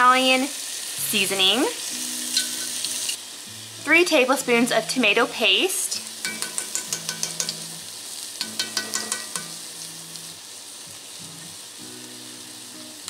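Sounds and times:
vegetables sizzling in a pot: 0:00.0 - 0:13.0
spoon scraping pot: 0:08.4 - 0:09.7.

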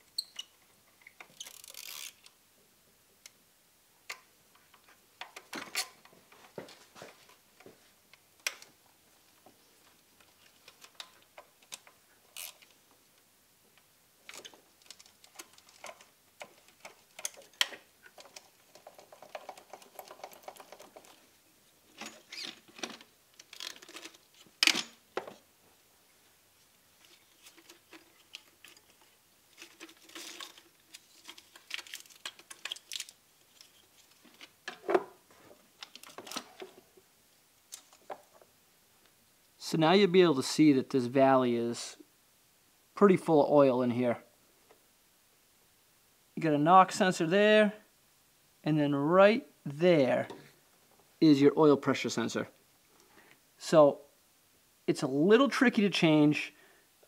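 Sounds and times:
hand tools and metal parts clattering: 0:27.1 - 0:36.8.

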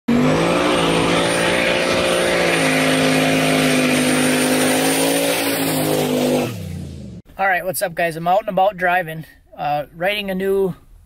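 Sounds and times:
truck engine at high revs: 0:00.1 - 0:07.2.

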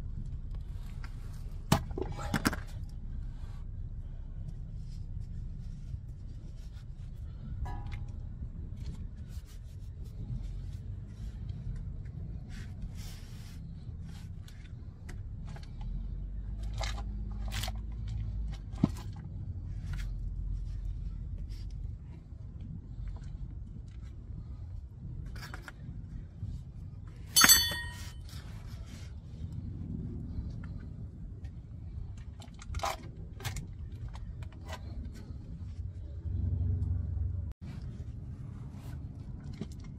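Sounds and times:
low steady rumble: 0:00.0 - 0:39.9
metallic clink with ring: 0:27.4 - 0:28.3.

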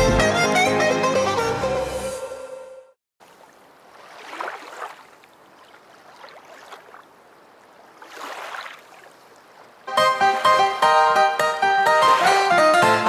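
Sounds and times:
lake waves lapping: 0:03.2 - 0:12.9.

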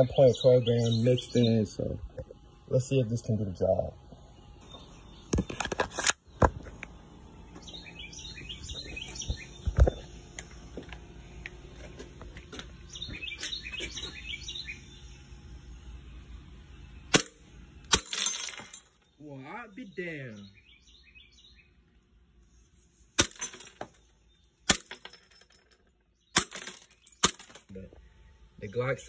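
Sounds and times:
small birds chirping: 0:00.0 - 0:24.9, 0:26.0 - 0:29.0
airsoft pistol shot: 0:17.1 - 0:18.0.

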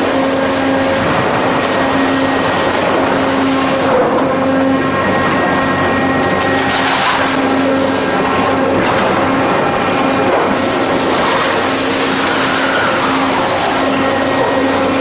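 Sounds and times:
heavy industrial machinery running: 0:00.0 - 0:15.0.

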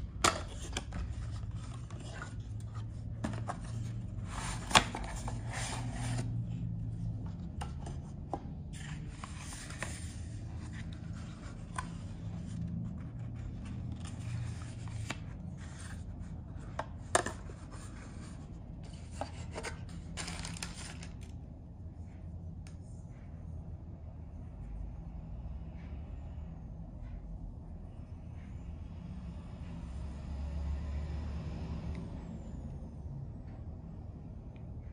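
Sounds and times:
cardboard rubbing and scraping: 0:00.5 - 0:06.4.

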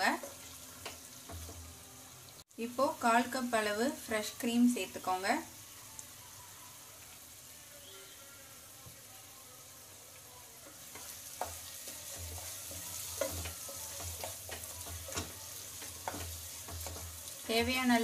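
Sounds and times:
gravy sizzling in a pan: 0:00.0 - 0:18.0
wooden spatula scraping a pan: 0:10.7 - 0:18.0.

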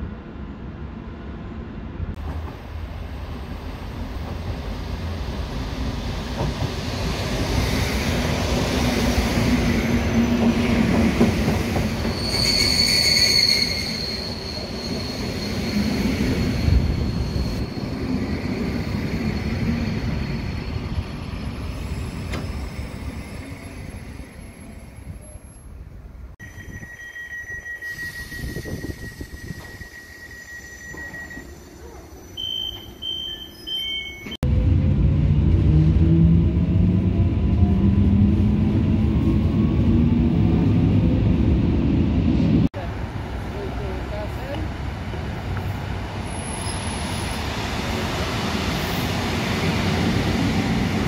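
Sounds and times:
freight train rolling past: 0:00.0 - 0:51.0
train wheels rumbling on rails: 0:02.1 - 0:25.4
high wheel squeal: 0:11.9 - 0:25.7, 0:26.4 - 0:34.4.

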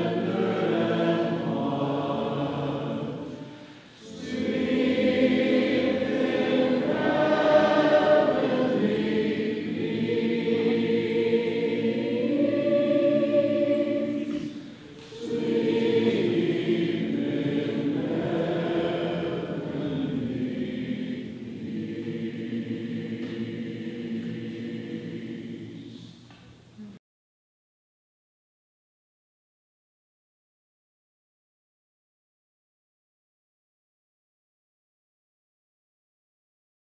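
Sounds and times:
men's choir singing chords: 0:00.0 - 0:26.2.

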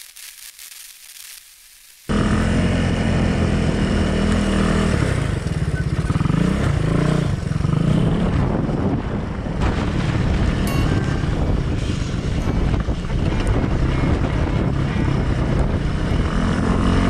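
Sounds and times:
dirt bike engine revving: 0:02.1 - 0:08.5, 0:10.7 - 0:17.0.

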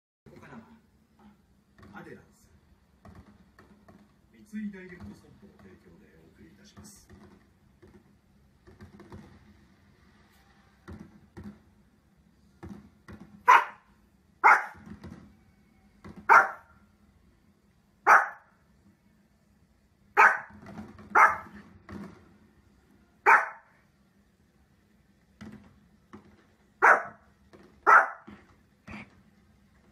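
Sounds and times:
small dog barking: 0:13.4 - 0:14.8, 0:16.3 - 0:16.7, 0:18.0 - 0:18.5, 0:20.2 - 0:21.6, 0:23.2 - 0:23.7, 0:26.8 - 0:27.2, 0:27.8 - 0:28.3.

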